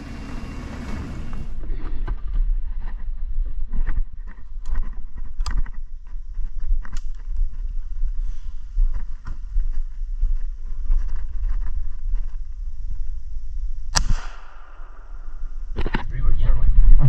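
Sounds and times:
steady low rumble: 0.0 - 17.0
shotgun shot with echo: 13.9 - 15.3.

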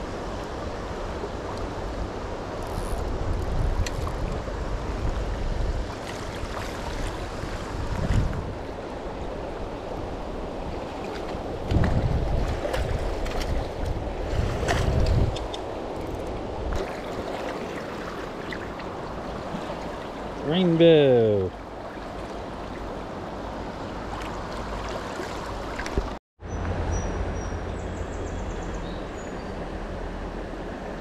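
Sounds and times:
wind buffeting microphone: 3.0 - 8.6, 9.3 - 17.4
river current rushing: 4.5 - 26.2.

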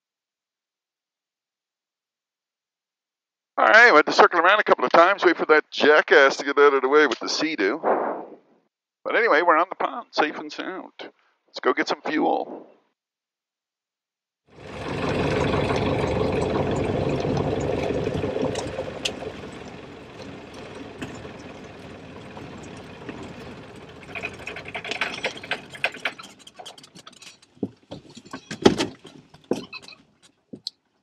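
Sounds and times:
piston engine and propeller running: 14.5 - 28.2
propeller knocking: 14.6 - 28.0.

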